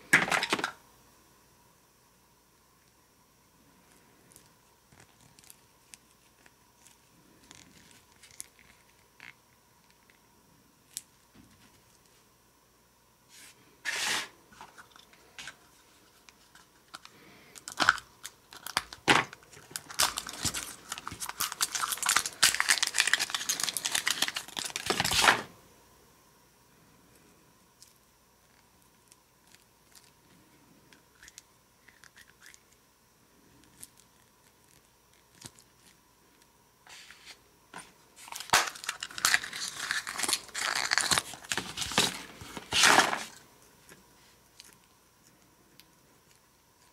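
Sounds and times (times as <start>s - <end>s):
plastic wrapper crinkling and tearing: 5.0s - 9.4s, 16.4s - 25.5s, 38.2s - 43.4s.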